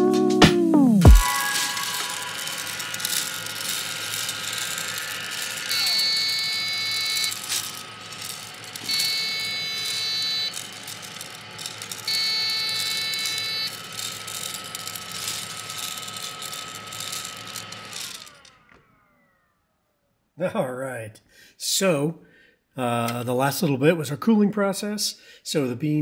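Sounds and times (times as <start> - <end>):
motor winding down: 0.9 - 20.3
roaster motor and fan humming: 1.0 - 19.4
coffee beans tumbling: 1.1 - 18.5.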